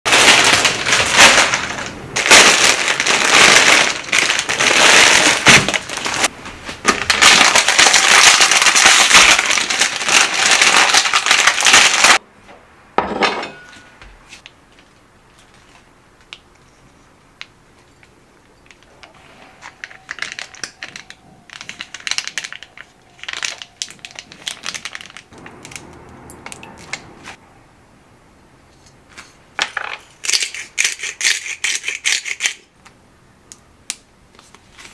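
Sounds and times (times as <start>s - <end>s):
plastic wrapper crinkling: 0.1s - 12.2s, 17.9s - 27.3s.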